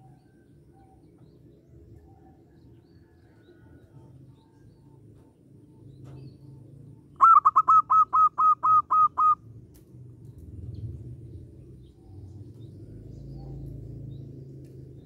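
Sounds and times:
dove cooing: 7.2 - 9.4.

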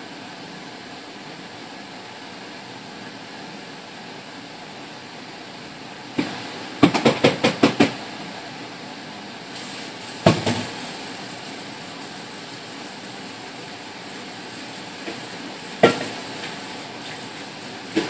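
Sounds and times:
range hood fan rushing: 0.0 - 18.0
knock: 6.2 - 7.9, 15.8 - 16.1.

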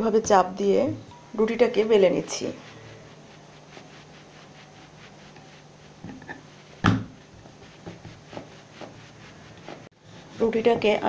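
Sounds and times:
rolling pin rolling dough: 1.4 - 11.0
wooden knock: 6.8 - 7.1.

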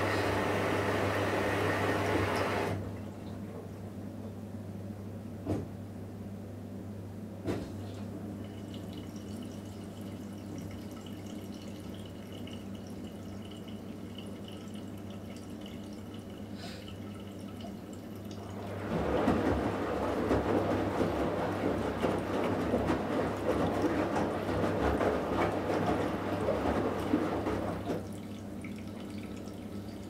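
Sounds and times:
washing machine hum: 0.0 - 30.0
wet laundry sloshing and tumbling: 7.4 - 30.0
water dripping in drum: 8.4 - 30.0.

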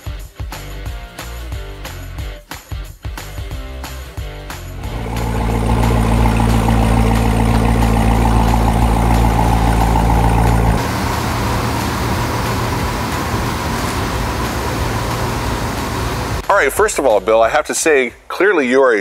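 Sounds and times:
car engine idling: 4.8 - 17.0.

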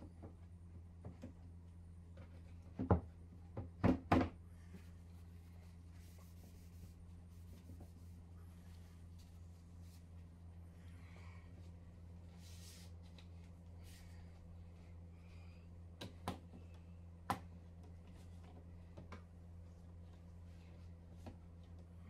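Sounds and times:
steady low hum: 0.0 - 22.0
soft scratchy rubbing: 4.7 - 10.3.

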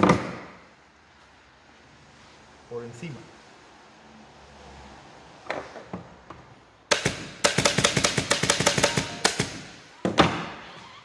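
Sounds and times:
staple gun firing into wood: 6.9 - 9.6.

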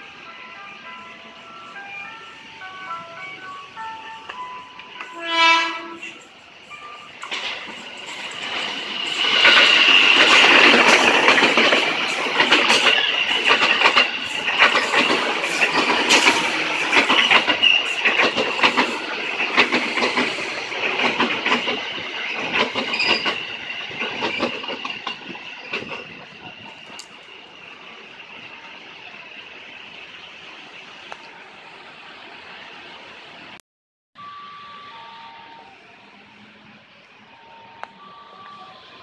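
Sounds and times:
electric train passing: 0.0 - 33.6, 34.2 - 39.0
train wheels clacking over rail joints: 7.2 - 27.2.

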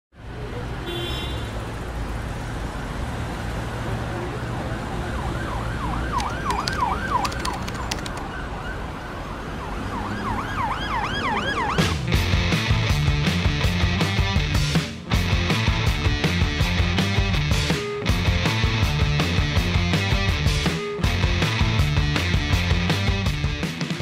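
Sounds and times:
city traffic rumble: 0.1 - 24.0
siren yelping: 4.7 - 12.0.

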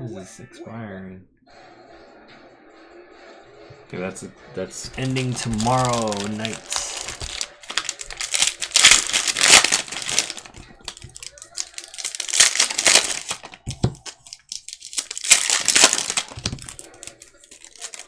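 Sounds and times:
foil wrappers torn and crumpled: 5.0 - 18.0.

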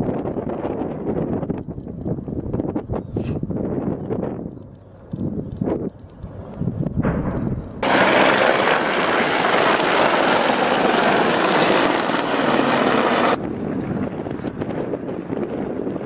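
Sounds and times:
helicopter flying past: 6.1 - 16.0.

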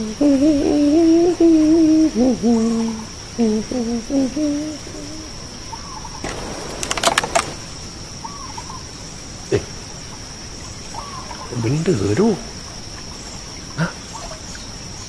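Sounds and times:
man humming: 0.0 - 5.4
sharp clicks: 6.2 - 7.7.

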